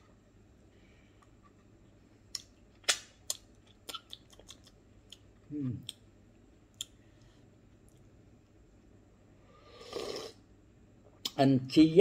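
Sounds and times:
wet mouth clicks and smacks: 0:02.3 - 0:06.0, 0:06.7 - 0:07.0
person chewing food: 0:02.3 - 0:08.2.

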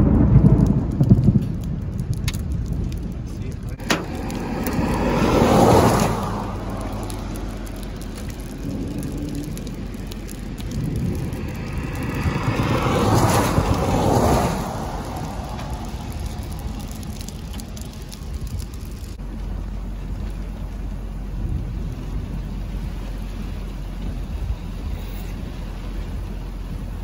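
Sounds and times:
cars passing on wet road: 0:00.0 - 0:27.0
rain hiss: 0:00.0 - 0:27.0.

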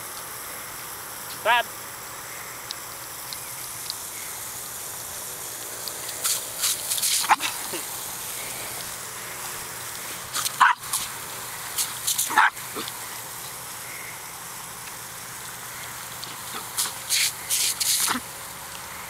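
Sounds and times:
sprinkler water jet hissing: 0:00.0 - 0:19.0
small dog barking: 0:07.2 - 0:07.8, 0:10.4 - 0:11.1, 0:12.2 - 0:12.9.

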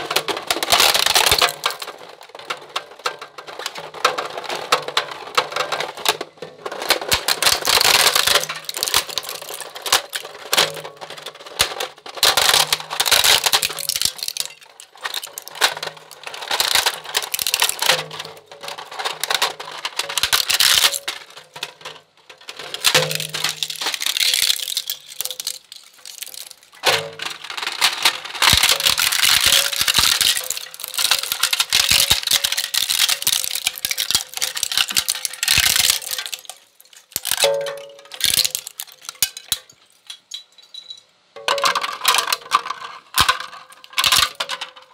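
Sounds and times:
shredder cracking plastic: 0:00.0 - 0:40.2, 0:41.4 - 0:44.9.

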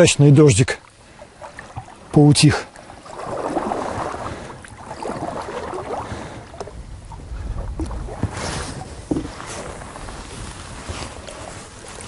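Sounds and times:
oars splashing in water: 0:00.8 - 0:12.0
oars knocking on boat: 0:07.7 - 0:09.8.

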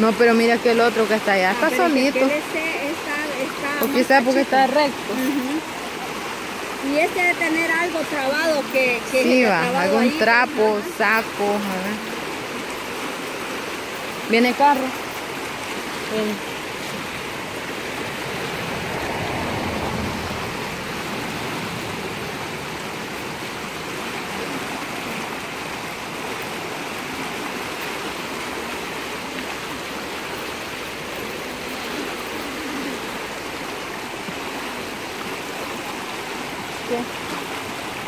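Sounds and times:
flooded river rushing: 0:00.0 - 0:38.0.

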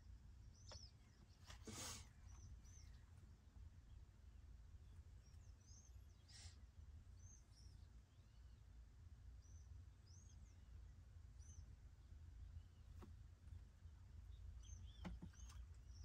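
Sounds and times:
faint bird chirps: 0:00.0 - 0:16.0
low steady rumble: 0:00.0 - 0:16.0
soft hisses: 0:01.5 - 0:02.2.

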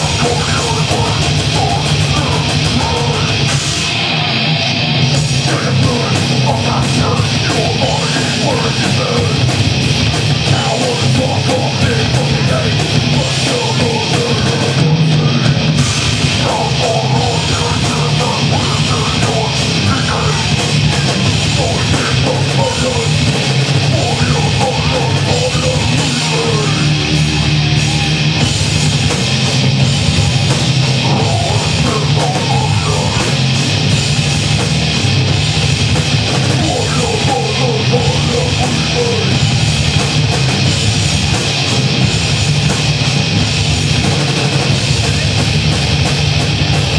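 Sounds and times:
live heavy metal band: 0:00.0 - 0:46.9.

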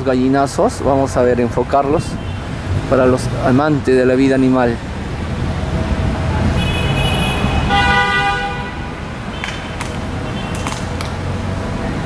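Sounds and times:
street traffic rumble: 0:00.0 - 0:12.0
vehicle horn honk: 0:06.5 - 0:09.0.

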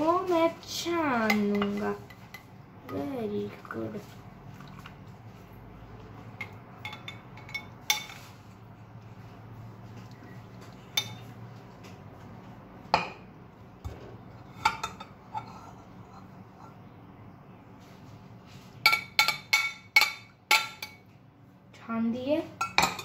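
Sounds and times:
metal utensils clinking: 0:06.4 - 0:08.3.

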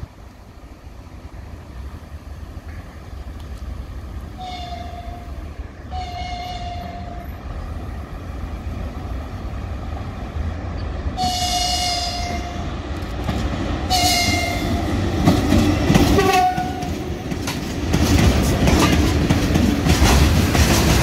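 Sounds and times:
steady low train rumble: 0:00.0 - 0:21.0
locomotive horn blasts: 0:05.9 - 0:07.4, 0:11.2 - 0:12.6, 0:13.9 - 0:14.8, 0:16.2 - 0:17.0.

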